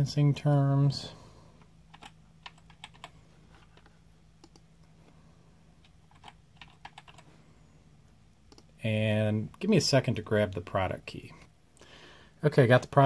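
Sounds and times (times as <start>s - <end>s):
keyboard typing: 1.9s - 4.7s, 5.8s - 7.3s, 8.5s - 8.8s.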